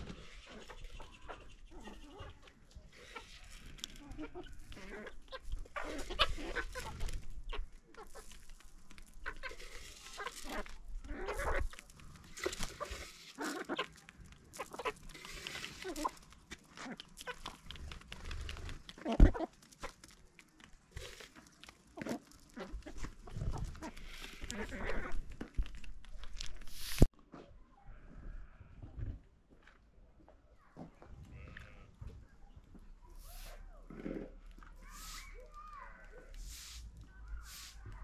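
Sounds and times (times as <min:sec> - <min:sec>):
chickens clucking: 0:00.0 - 0:20.2, 0:21.0 - 0:25.9, 0:33.1 - 0:35.5, 0:36.3 - 0:38.0.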